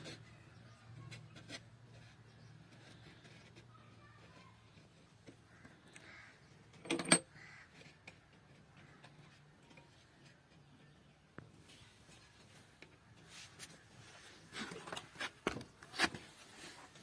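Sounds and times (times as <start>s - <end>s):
crow cawing: 5.5s - 6.5s, 7.3s - 7.8s.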